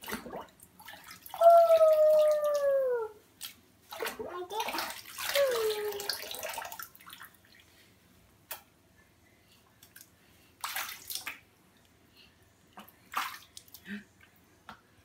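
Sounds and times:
water splashing into sink: 0.0s - 2.7s, 3.4s - 7.3s.

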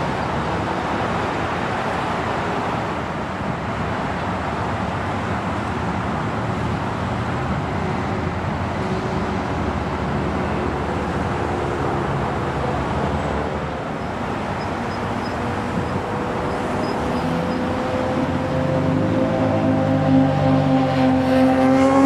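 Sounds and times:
airport ground noise: 0.0s - 22.0s
road traffic: 0.0s - 22.0s.

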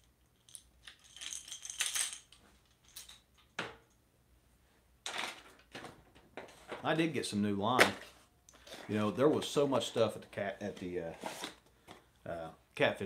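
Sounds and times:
fishing tackle rattling: 0.4s - 3.5s.

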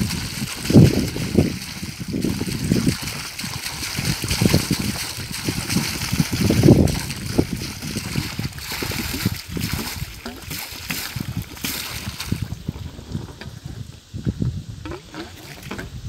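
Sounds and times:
water splashing onto soil: 0.0s - 12.8s
water gushing from a pipe: 0.0s - 13.8s, 14.8s - 15.9s.

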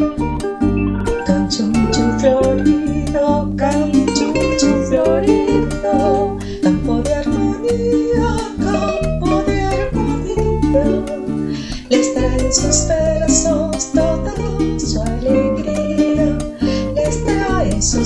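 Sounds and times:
pulsing bass line: 0.0s - 5.8s
picked mandolin melody: 0.0s - 18.0s
plucked string rhythm: 0.0s - 18.0s.

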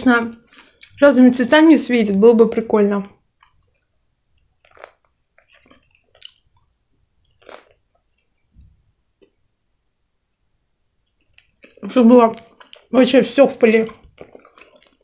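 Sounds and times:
chewing fried chicken: 3.4s - 8.4s, 11.1s - 15.0s.

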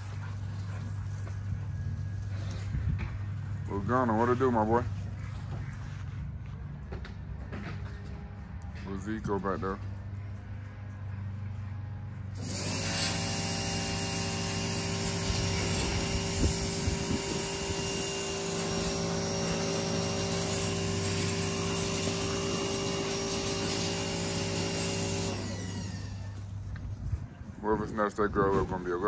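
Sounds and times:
motor-driven machine humming: 12.2s - 26.9s.

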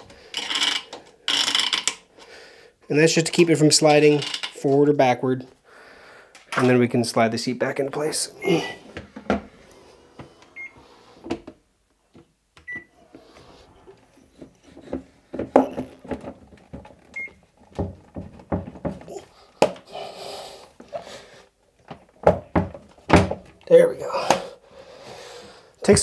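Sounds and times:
plastic seat knocking and scraping: 14.4s - 19.8s, 21.9s - 23.6s.

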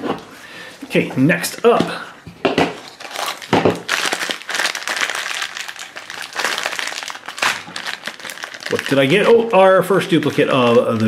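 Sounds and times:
plastic wrapper crinkling: 2.8s - 11.0s.

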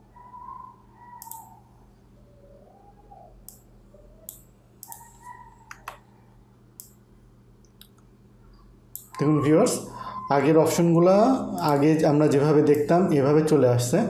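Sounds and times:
faint low hum: 0.0s - 14.0s
computer mouse clicking: 1.1s - 1.6s, 3.4s - 6.0s, 6.8s - 7.0s, 8.9s - 9.2s.

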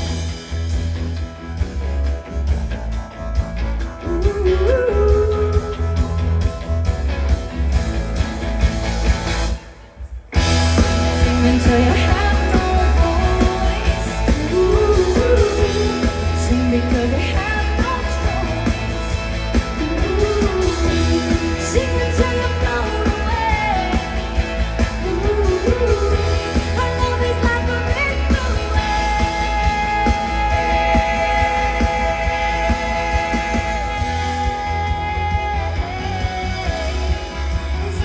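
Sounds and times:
heavy bass: 0.0s - 38.0s
live pop band: 0.0s - 38.0s
person singing: 4.0s - 6.3s, 10.8s - 38.0s.

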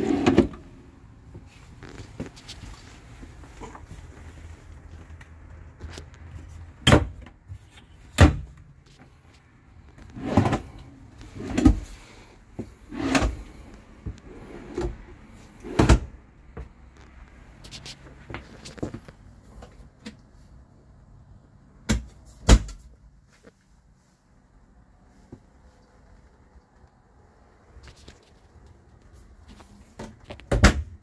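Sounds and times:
wooden drawers sliding: 0.0s - 0.7s, 10.0s - 12.0s, 12.6s - 16.1s.

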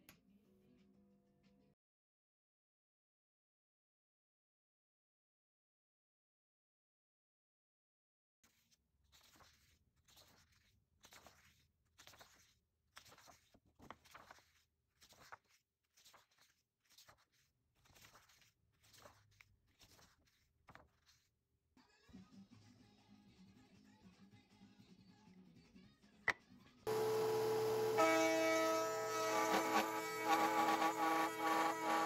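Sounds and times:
music: 0.0s - 1.8s, 21.8s - 26.8s.

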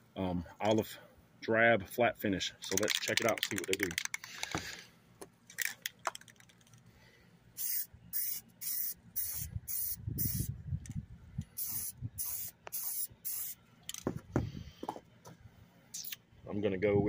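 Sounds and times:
spray paint can hissing: 7.6s - 10.5s, 11.6s - 13.6s.

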